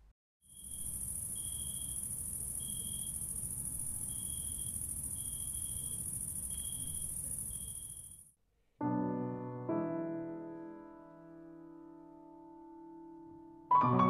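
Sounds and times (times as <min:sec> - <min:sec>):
crickets trilling: 0:00.5 - 0:08.3
low chirp: 0:00.5 - 0:08.3.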